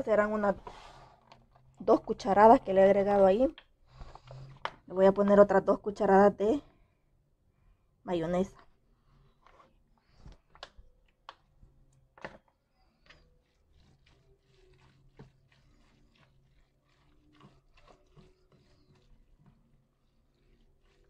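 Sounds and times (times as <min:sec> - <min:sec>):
spoon stirring wet filling: 0:12.8 - 0:21.0.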